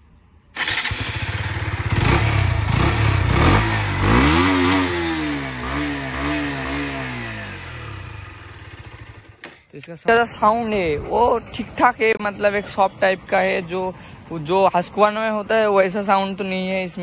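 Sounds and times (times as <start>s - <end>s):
motorcycle engine revving: 0.6s - 9.6s.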